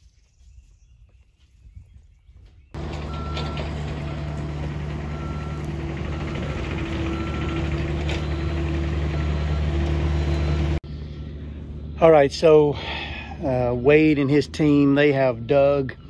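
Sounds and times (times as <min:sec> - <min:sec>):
backup alarm beeping: 0:02.8 - 0:10.8
heavy vehicle engine running: 0:02.8 - 0:15.2.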